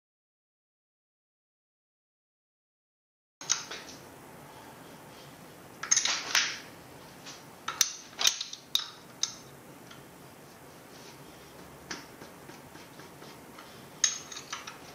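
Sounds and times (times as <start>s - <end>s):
metal engine parts clinking: 14.0s - 14.8s.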